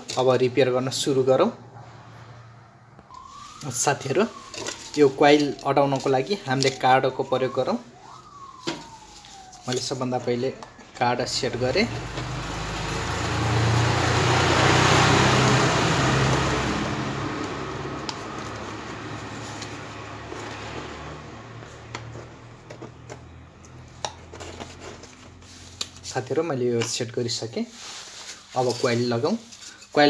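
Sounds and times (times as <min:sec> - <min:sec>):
vehicle passing by: 0:00.4 - 0:05.2, 0:11.2 - 0:23.8.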